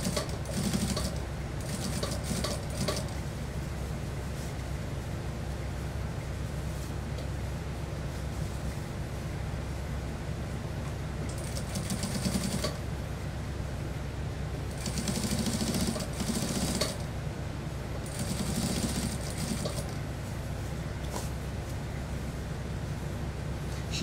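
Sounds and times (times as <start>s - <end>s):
sewing machine stitching: 0.0s - 3.1s, 14.8s - 17.0s, 18.1s - 19.9s
steady low hum: 0.0s - 24.0s.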